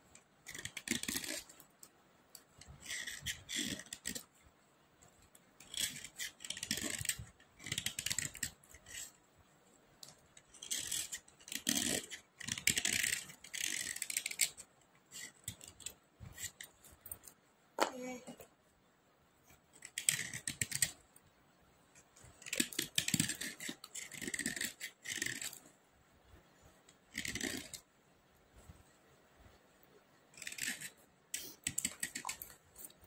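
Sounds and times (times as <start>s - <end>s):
knife blade scraping slate pencils: 0.4s - 1.6s, 2.6s - 4.3s, 5.6s - 9.2s, 10.1s - 17.4s, 19.8s - 21.0s, 22.3s - 25.7s, 27.1s - 27.9s, 30.3s - 33.0s.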